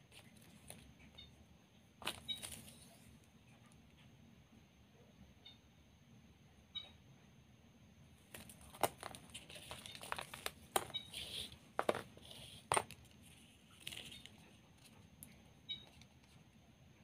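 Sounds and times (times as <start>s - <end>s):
ribbon rustling: 8.2s - 15.0s.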